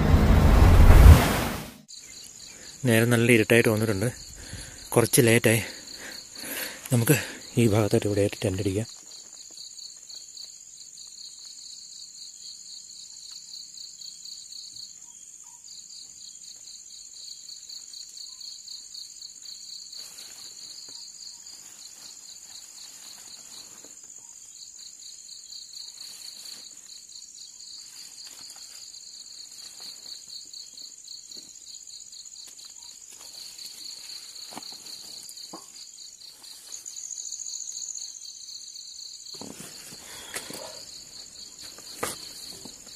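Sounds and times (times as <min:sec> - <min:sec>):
cricket pulsing trill: 0:01.9 - 0:39.4, 0:40.0 - 0:42.9.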